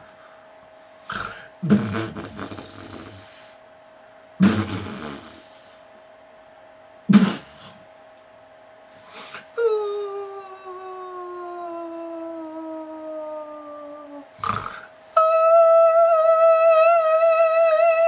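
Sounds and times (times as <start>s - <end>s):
man's sharp vocal bursts: 7.1s - 7.8s
man moaning: 9.6s - 18.0s.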